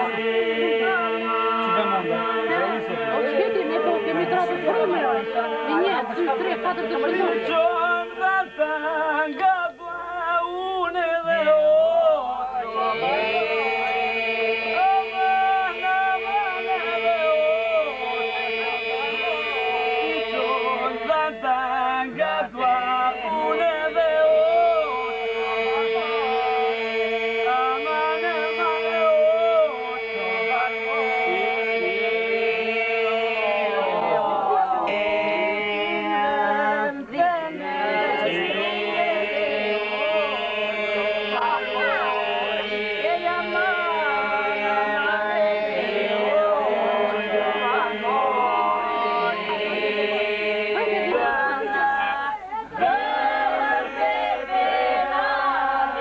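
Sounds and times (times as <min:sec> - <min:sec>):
men's voices holding a drone: 0:00.0 - 0:08.5.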